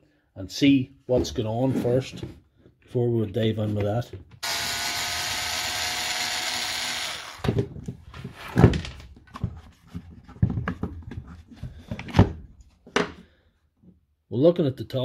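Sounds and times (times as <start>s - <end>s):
cordless screwdriver motor: 4.4s - 7.5s.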